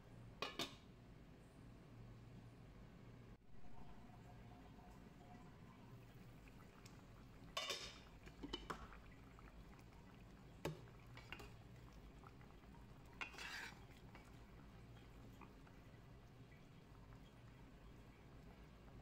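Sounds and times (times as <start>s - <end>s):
wooden spatula stirring in a pot: 7.7s - 19.0s
spatula scraping and knocking pot: 13.1s - 14.4s.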